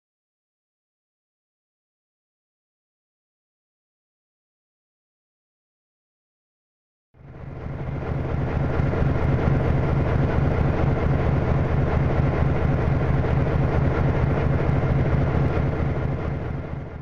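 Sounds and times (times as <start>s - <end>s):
diesel locomotive engine idling: 7.2s - 17.0s.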